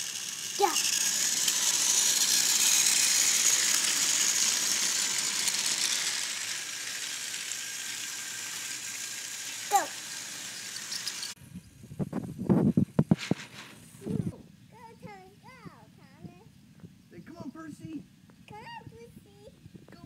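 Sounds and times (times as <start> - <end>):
film projector whirring: 0.0 - 11.4.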